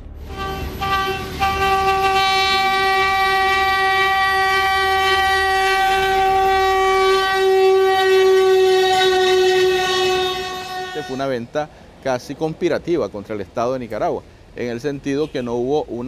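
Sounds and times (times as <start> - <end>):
low rumble of train: 0.0 - 16.0
train horn blast: 0.2 - 11.4.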